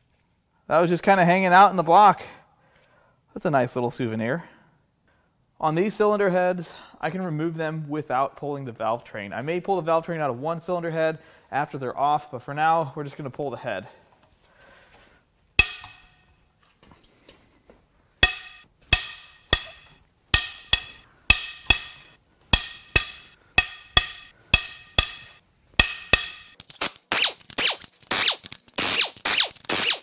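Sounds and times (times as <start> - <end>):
air impact wrench bursts: 26.8 - 30.0.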